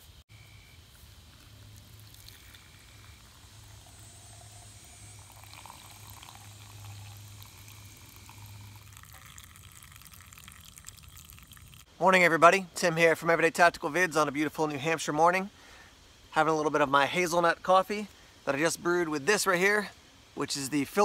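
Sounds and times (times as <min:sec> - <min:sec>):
coffee trickling through cloth filter: 0:00.9 - 0:11.9.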